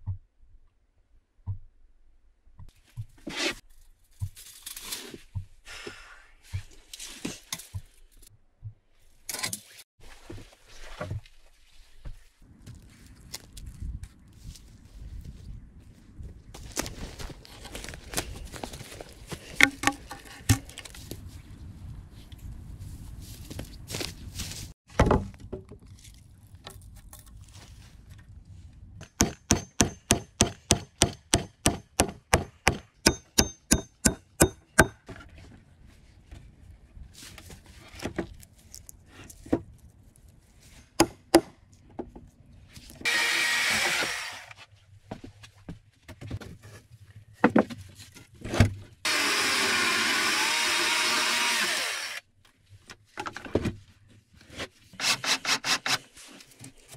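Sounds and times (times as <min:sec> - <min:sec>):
logs knocking and clattering: 0:19.6 - 0:20.8
hatchet chopping log: 0:29.0 - 0:35.1, 0:40.9 - 0:41.6.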